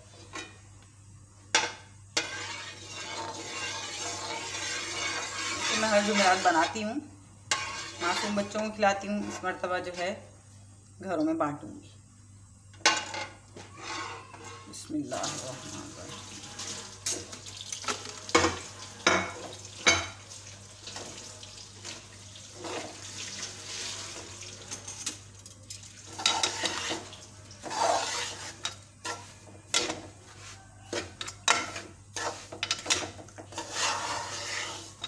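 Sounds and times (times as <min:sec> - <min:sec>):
oil sizzling: 0:00.0 - 0:10.8, 0:12.4 - 0:35.0
utensils scraping metal pot: 0:02.2 - 0:06.8, 0:07.5 - 0:10.2, 0:26.0 - 0:35.0.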